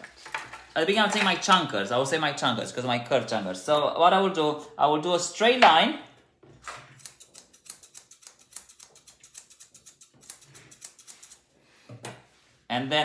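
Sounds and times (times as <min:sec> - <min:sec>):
scissors snipping hair: 0:06.9 - 0:11.5.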